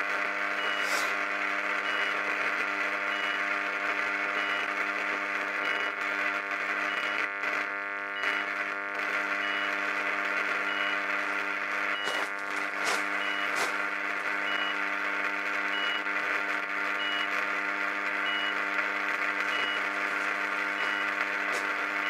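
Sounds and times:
transformer hum and buzz: 0.0s - 22.0s
electrical arcing: 11.2s - 15.4s, 17.4s - 22.0s.

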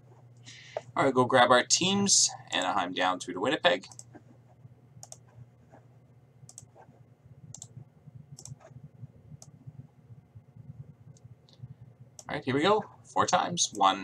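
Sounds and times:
low steady hum: 0.0s - 14.0s
computer mouse clicks: 3.9s - 4.2s, 5.0s - 5.8s, 6.5s - 6.9s, 7.5s - 7.8s, 8.4s - 8.8s.

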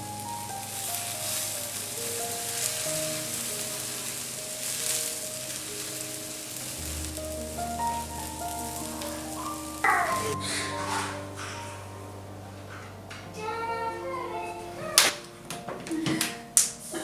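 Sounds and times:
bread sizzling on a griddle: 0.0s - 10.4s
soft background music: 0.0s - 17.0s.

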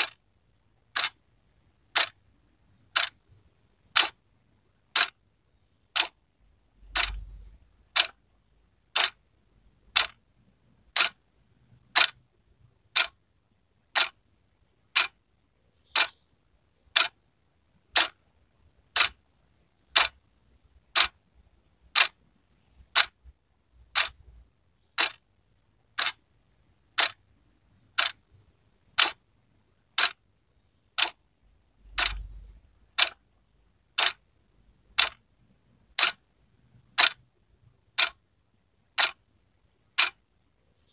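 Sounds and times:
wall clock ticking: 0.0s - 4.2s, 4.8s - 5.2s, 5.9s - 6.2s, 6.8s - 9.2s, 9.8s - 16.2s, 16.9s - 17.2s, 17.8s - 21.2s, 21.8s - 26.2s, 26.8s - 29.3s, 29.9s - 30.3s, 31.0s - 31.2s, 31.8s - 33.3s, 33.9s - 38.2s, 38.9s - 39.3s, 39.9s - 40.9s.

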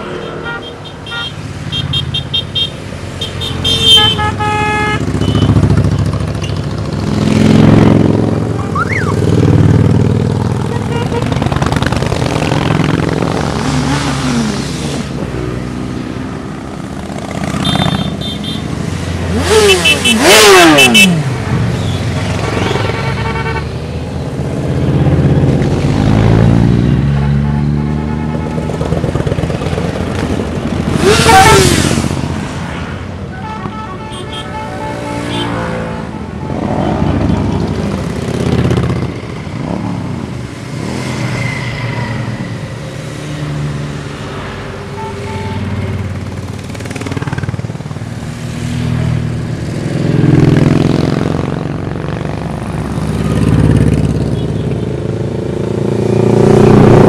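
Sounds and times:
motorcycles riding past: 45.6s - 57.0s.

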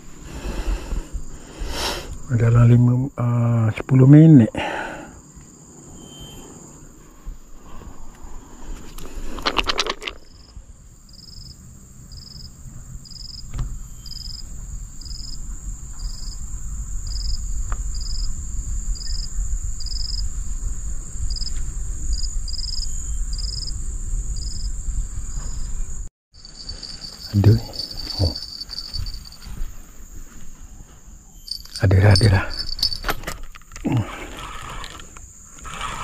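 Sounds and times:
insects droning and chirping: 0.0s - 36.0s
loud rasping sound: 33.9s - 36.0s.

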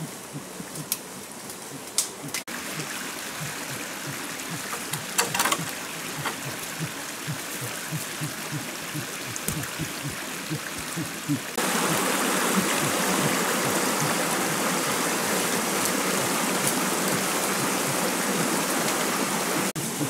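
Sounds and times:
low regular pulse: 0.0s - 0.9s, 1.7s - 14.8s
stream rushing: 0.0s - 20.0s.

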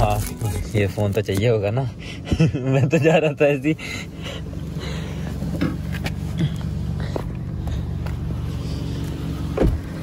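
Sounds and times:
car engine idling: 0.0s - 10.0s
clicks and knocks inside car: 9.5s - 10.0s.

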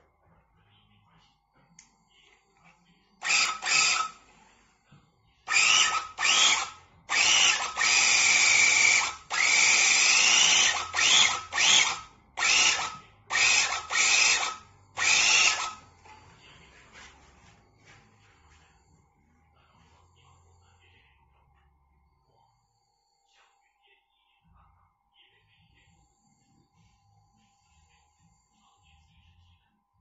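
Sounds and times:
rug-tufting gun motor whine: 3.2s - 4.6s, 5.5s - 18.9s.

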